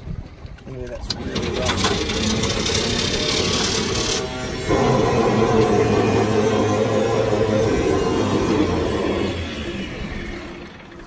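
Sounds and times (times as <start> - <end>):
water and wind noise: 0.0 - 11.0
motorboat engine humming: 0.2 - 11.0.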